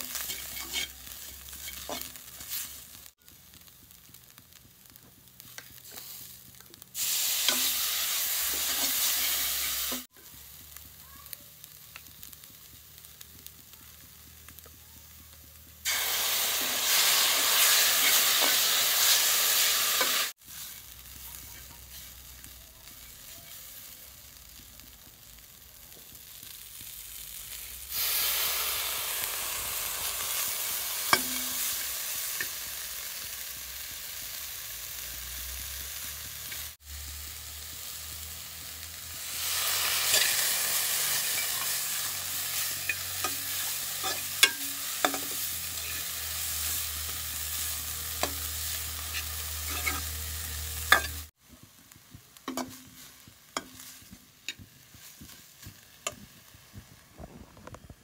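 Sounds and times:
metal spoon scraping and clinking: 0.0 - 2.6, 42.6 - 46.1, 49.1 - 50.1, 50.9 - 51.2
food sizzling in a pot: 0.0 - 58.0.

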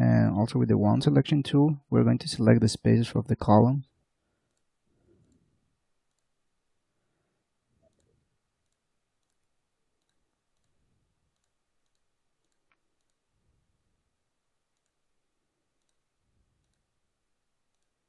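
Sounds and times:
computer mouse clicks: 4.5 - 5.4, 6.0 - 6.3, 7.8 - 13.2, 14.7 - 15.0, 15.8 - 16.9, 17.7 - 18.0.

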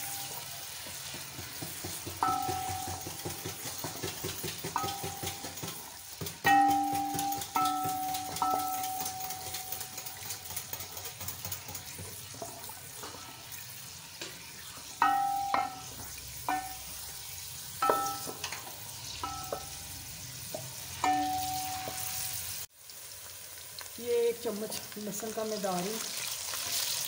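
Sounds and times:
onions sizzling in a pot: 0.0 - 27.0
wooden spoon knocking on metal pot: 0.7 - 13.2, 15.0 - 17.0, 17.8 - 19.8, 20.5 - 22.1.

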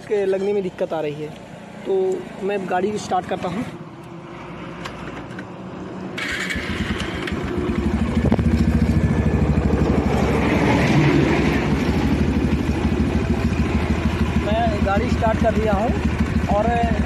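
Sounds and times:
motorcycle engine starting and running: 6.2 - 17.0.

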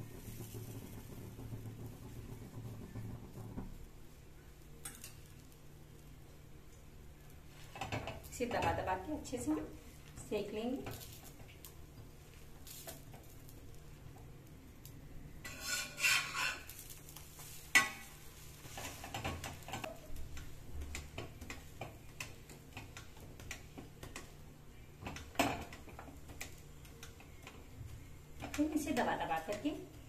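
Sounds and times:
ghee sizzling: 0.0 - 30.0
metal spatula scraping on iron pan: 15.4 - 20.0.

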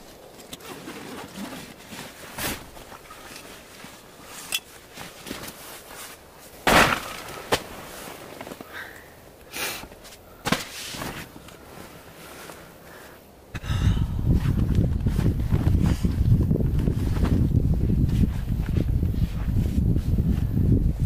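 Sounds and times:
sharp cracks and crunches: 6.6 - 8.7.

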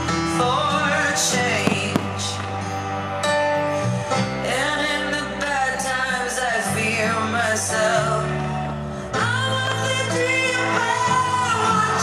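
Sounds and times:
guitar: 0.0 - 12.0
person singing: 4.4 - 12.0.

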